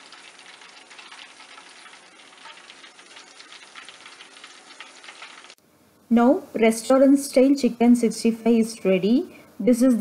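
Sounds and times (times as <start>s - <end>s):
hot oil sizzling in a pan: 0.0s - 5.6s.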